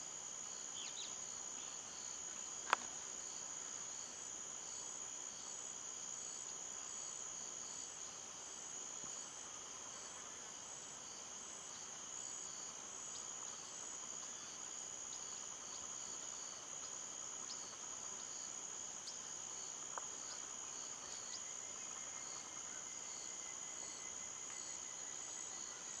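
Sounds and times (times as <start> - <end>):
pulsing cricket chirp: 0.0 - 26.0
insects trilling: 11.0 - 26.0.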